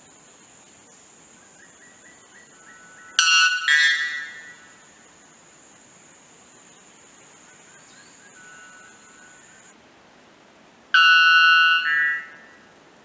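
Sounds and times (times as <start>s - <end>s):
bellbird calling: 2.6s - 4.8s, 11.0s - 12.6s.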